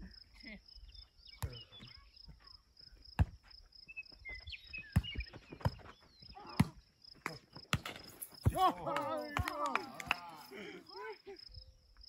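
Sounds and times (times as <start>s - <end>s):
cricket chirping: 0.0s - 12.0s
volleyball slaps: 6.6s - 10.3s.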